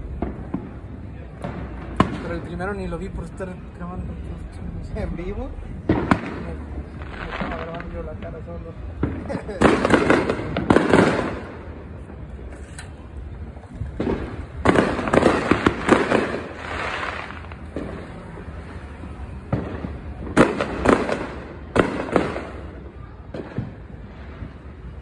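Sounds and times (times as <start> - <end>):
fireworks cracking and banging: 0.0 - 25.0.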